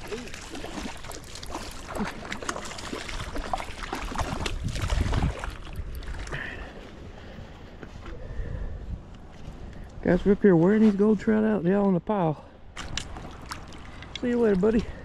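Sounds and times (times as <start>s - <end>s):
fish splashing in water: 0.0s - 6.4s, 12.8s - 14.1s.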